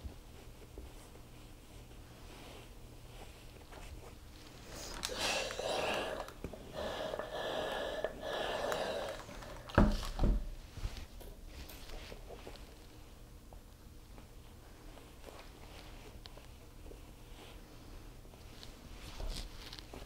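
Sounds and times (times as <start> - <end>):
rustling of cloth: 0.0 - 5.6, 9.4 - 20.0
steam iron hissing: 4.7 - 9.6.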